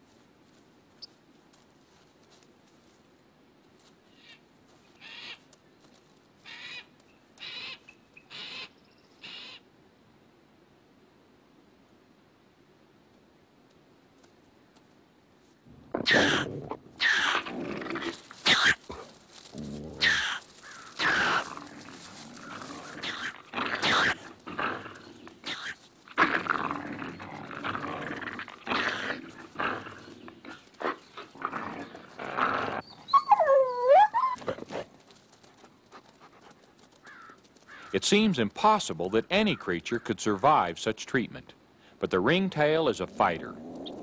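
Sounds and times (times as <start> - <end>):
animals snarling and growling: 15.7 - 35.0, 43.0 - 44.0.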